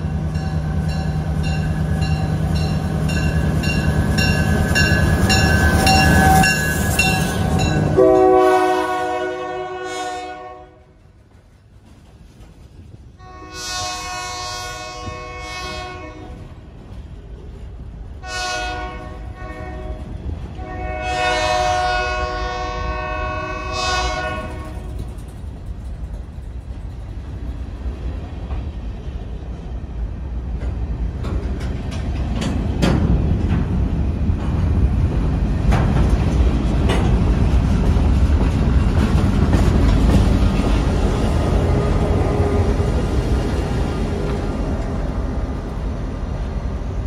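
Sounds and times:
low rumble of train: 0.0s - 47.0s
locomotive horn blasts: 7.3s - 10.9s, 13.2s - 16.4s, 18.2s - 24.9s
train wheel clicks: 24.6s - 28.7s, 30.5s - 41.4s.

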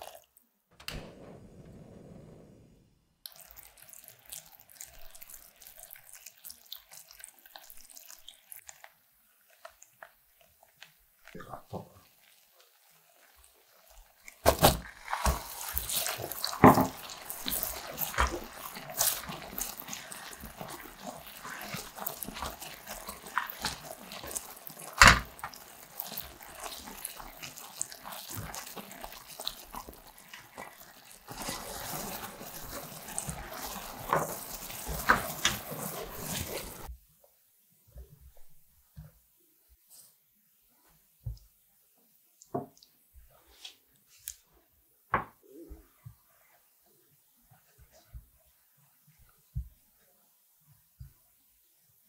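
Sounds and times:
syrup boiling in a saucepan: 0.0s - 0.4s, 3.2s - 36.9s, 45.7s - 52.0s.

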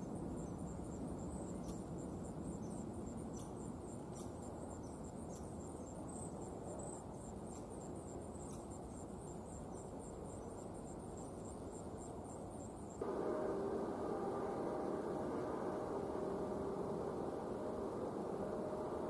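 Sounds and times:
faint outdoor background noise: 0.0s - 19.0s
high-pitched insect trill: 12.7s - 19.0s.

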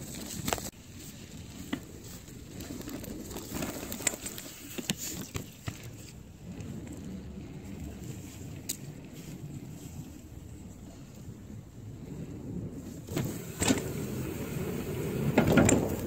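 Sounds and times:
bike rolling over wooden boards: 0.0s - 16.0s
sharp clicks and rattles: 15.4s - 16.0s.

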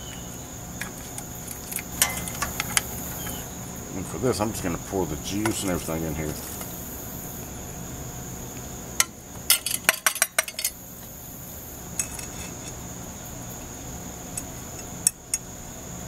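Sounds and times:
high insect drone: 0.0s - 16.0s
can and spoon clinking on saucepan: 2.0s - 2.9s.

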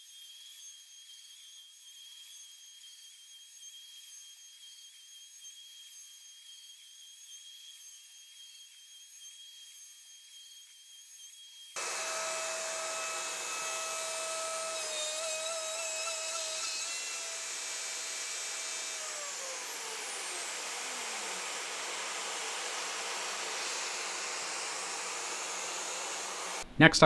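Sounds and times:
dust collection vacuum rushing: 11.8s - 26.8s
router motor whine: 11.8s - 26.8s.

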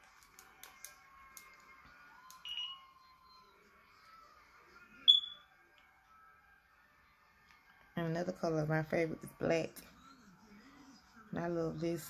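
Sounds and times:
short high-pitched beeps: 2.4s - 2.9s, 5.1s - 5.4s.

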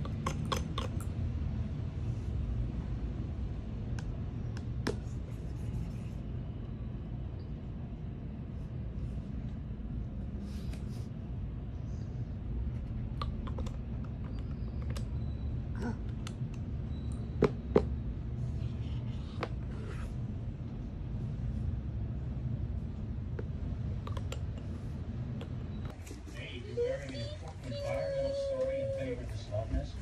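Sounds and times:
steady low rumble: 20.1s - 30.0s.

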